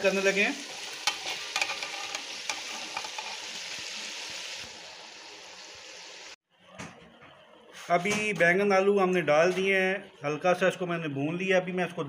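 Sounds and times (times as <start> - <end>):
oil sizzling in a pot: 0.0 - 6.4.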